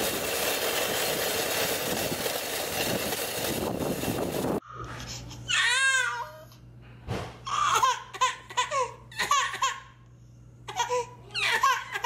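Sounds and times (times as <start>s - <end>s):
baby crying: 5.5s - 6.5s, 7.5s - 9.9s, 10.7s - 12.0s.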